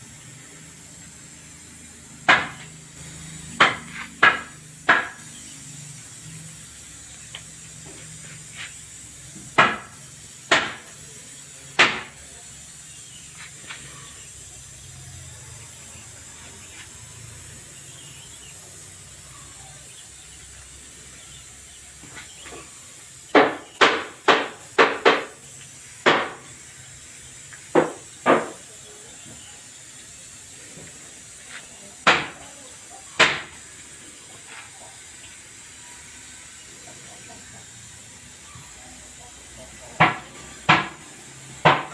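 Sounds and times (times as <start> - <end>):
steady background hiss: 0.0 - 41.9
sharp short knocks: 2.3 - 2.7.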